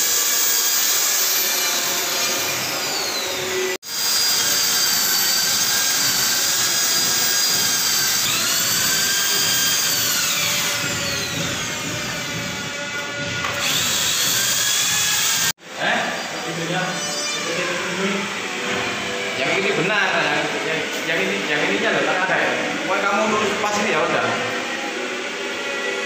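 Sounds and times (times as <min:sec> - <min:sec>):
electric drill whining: 0:00.0 - 0:15.6.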